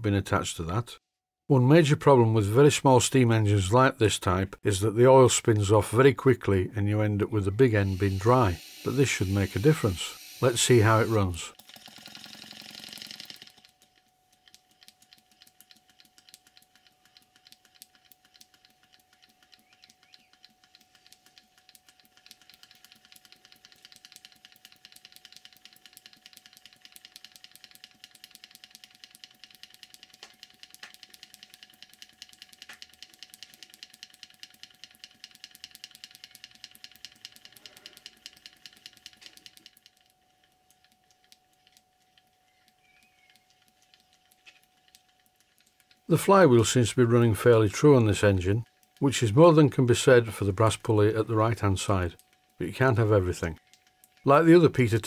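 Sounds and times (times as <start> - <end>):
model steam engine beating: 7.7 - 11.4.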